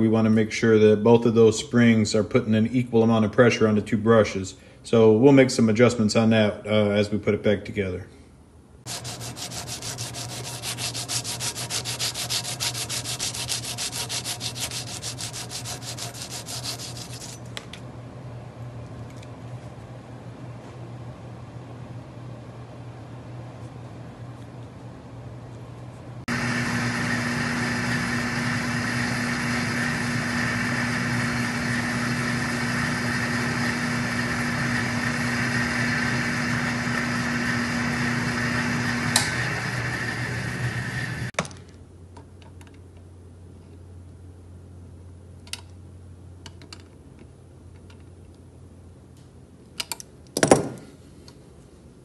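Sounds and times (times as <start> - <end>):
small motor running: 8.9 - 17.4.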